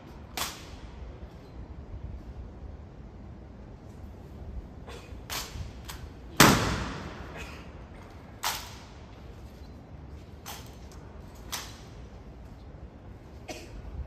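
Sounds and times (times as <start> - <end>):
loud rifle crack: 6.4 - 7.2.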